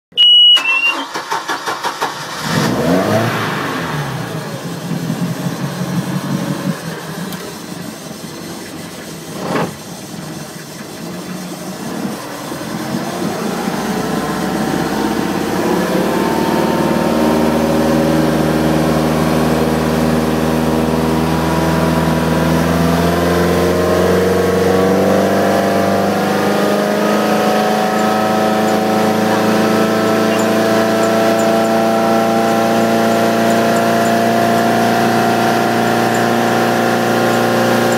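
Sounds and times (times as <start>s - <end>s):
boat engine starting and running: 0.1s - 37.9s
engine knock: 6.8s - 17.0s.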